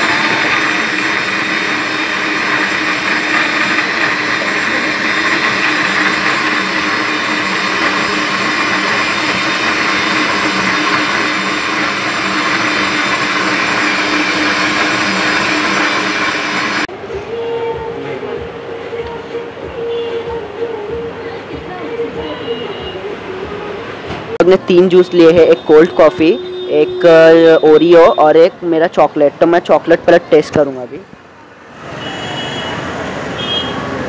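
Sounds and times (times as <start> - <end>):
blender running: 0.0 - 16.9.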